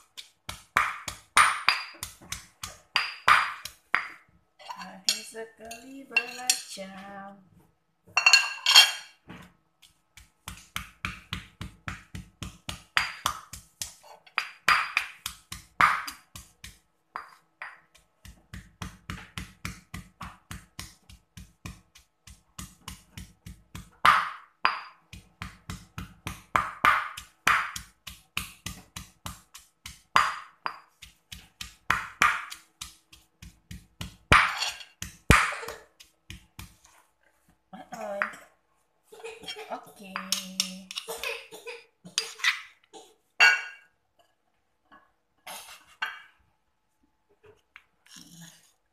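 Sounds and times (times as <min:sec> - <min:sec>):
stone pestle pounding in mortar: 0:00.0 - 0:04.3, 0:09.9 - 0:36.9.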